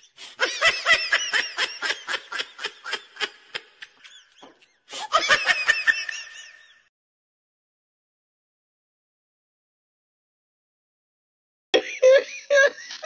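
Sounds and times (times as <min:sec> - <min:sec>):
person laughing: 0:00.2 - 0:06.8, 0:11.8 - 0:13.0.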